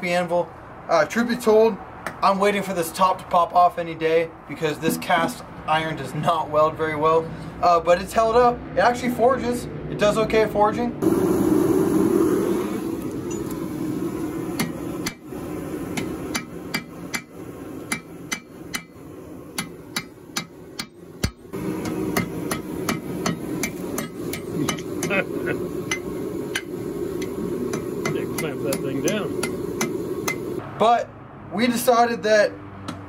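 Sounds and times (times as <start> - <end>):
forge and blower hum: 11.0 - 30.6
hammer striking steel on anvil: 14.6 - 15.2, 15.9 - 19.0, 19.6 - 25.2, 25.8 - 30.6.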